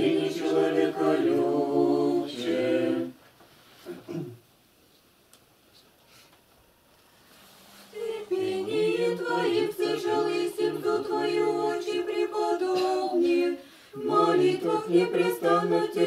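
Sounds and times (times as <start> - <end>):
group singing unaccompanied: 0.0 - 3.2, 7.9 - 16.0.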